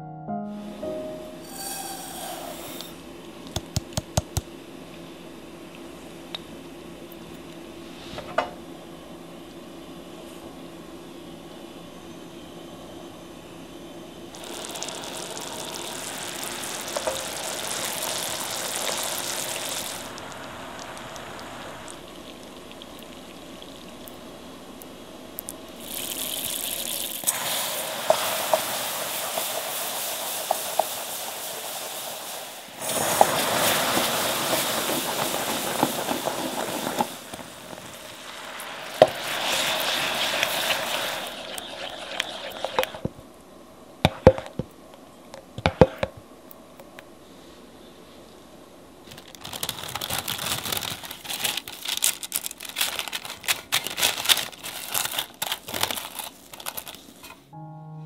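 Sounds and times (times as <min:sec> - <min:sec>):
loud hissing and bubbling: 0:01.4 - 0:03.0, 0:14.3 - 0:24.2, 0:25.8 - 0:43.1
syrup boiling in a pot: 0:14.3 - 0:24.2, 0:25.8 - 0:43.1.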